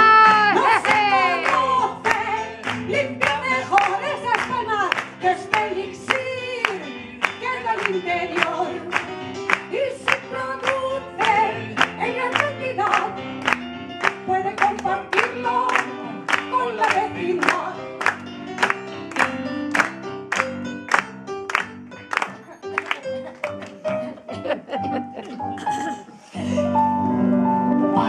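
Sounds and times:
woman singing: 0.0 - 9.0, 9.7 - 13.2, 14.2 - 17.9
instrumental accompaniment: 0.0 - 28.0.

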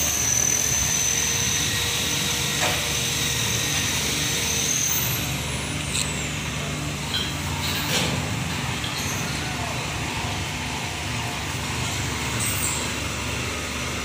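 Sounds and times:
motor humming with high whine: 0.0 - 14.0.

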